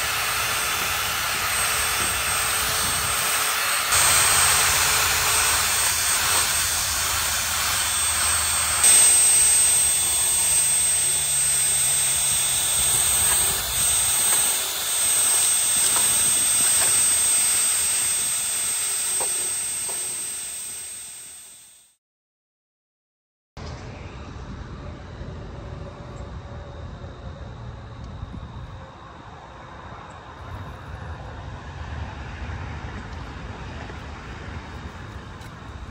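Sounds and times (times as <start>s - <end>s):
loud hissing rush: 0.0s - 21.4s
low hum: 0.0s - 21.8s
thin high whine: 0.0s - 22.0s.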